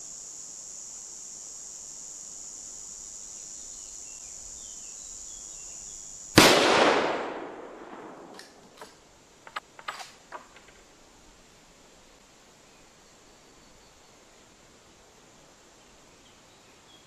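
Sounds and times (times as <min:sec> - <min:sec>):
high insect buzz: 0:00.0 - 0:17.0
rifle shot: 0:06.4 - 0:08.6.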